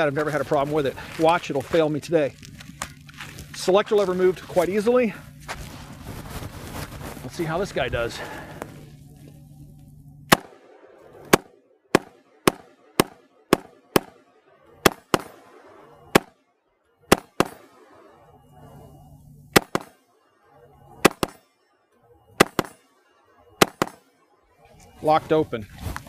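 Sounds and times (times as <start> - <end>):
rifle gunshots: 10.3 - 18.4, 19.5 - 21.4, 22.2 - 24.2.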